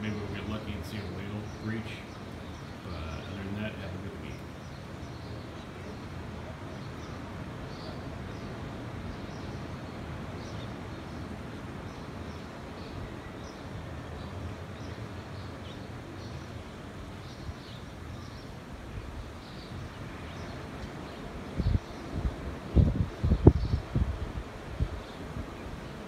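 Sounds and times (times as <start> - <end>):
birds chirping: 0.0 - 26.0
wind rushing: 21.2 - 26.0.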